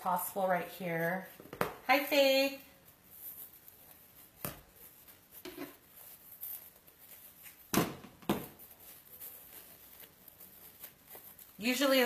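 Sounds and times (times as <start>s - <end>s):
ribbon rustling and tapping: 2.8s - 12.0s.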